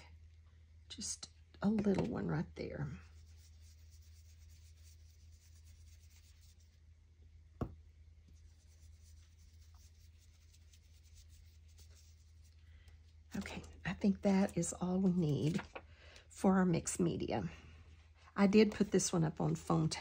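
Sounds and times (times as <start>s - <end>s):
low steady hum: 0.0s - 20.0s
foam tool rubbing over paper: 3.0s - 6.8s, 8.4s - 12.6s.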